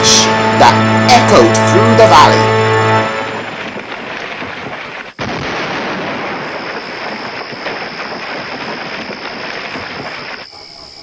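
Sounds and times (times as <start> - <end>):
rumbling crash of falling masonry: 3.4 - 10.4.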